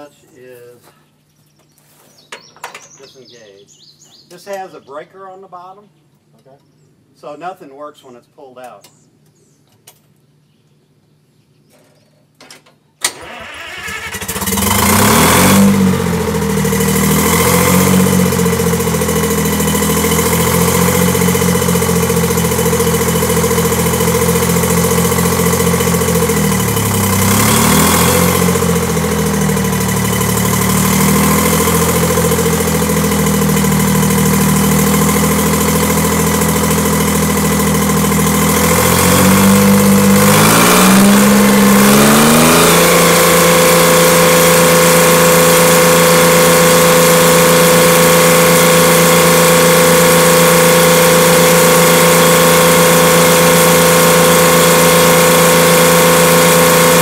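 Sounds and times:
diesel engine running loudly: 13.2s - 57.0s.

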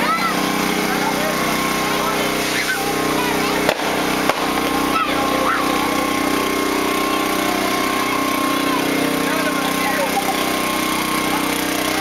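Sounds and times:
engine running steadily: 0.0s - 12.0s
faint crowd voices: 0.0s - 12.0s
sharp pops: 3.6s - 5.0s.

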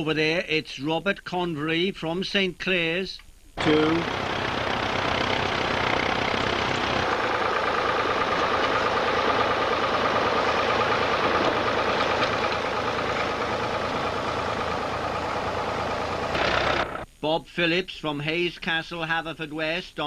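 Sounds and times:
tractor engines running: 3.6s - 17.0s.

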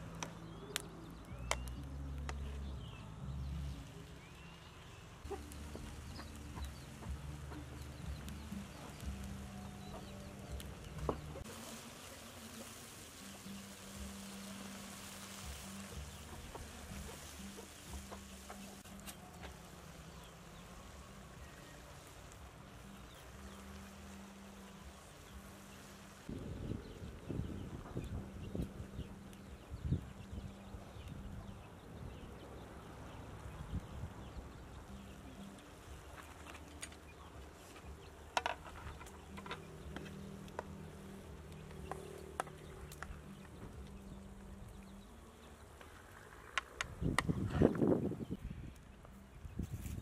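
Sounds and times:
greens sizzling in a wok: 3.6s - 27.4s.

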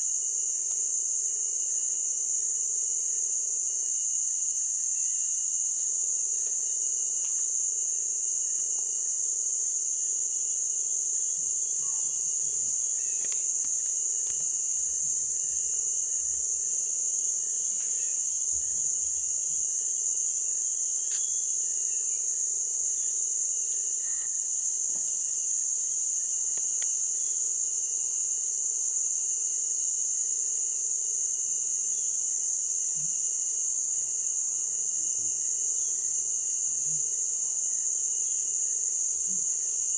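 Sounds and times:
insect chorus droning: 0.0s - 39.9s.

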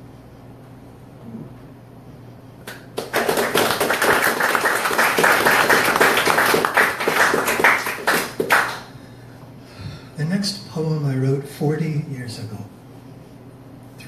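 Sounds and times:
audience applauding: 2.7s - 9.0s.

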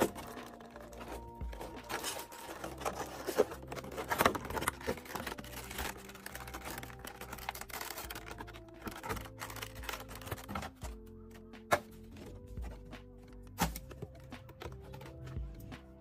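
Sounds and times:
plastic packaging crinkling: 0.0s - 10.8s
quiet background music: 0.0s - 16.0s.

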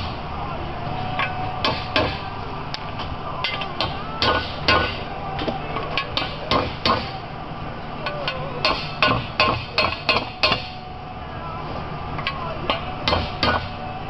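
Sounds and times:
hammer tapping metal: 3.4s - 5.1s, 8.1s - 10.8s.

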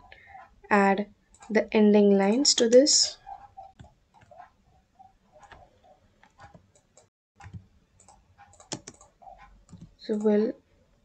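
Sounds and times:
computer mouse clicks: 1.3s - 1.5s, 2.7s - 4.5s, 5.4s - 10.4s.

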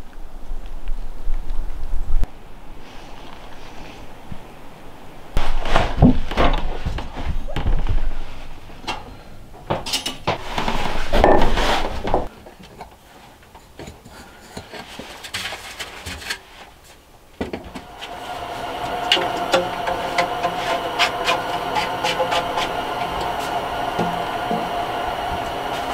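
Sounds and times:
tools clattering: 9.7s - 10.5s
cordless drill whine: 17.8s - 25.9s.

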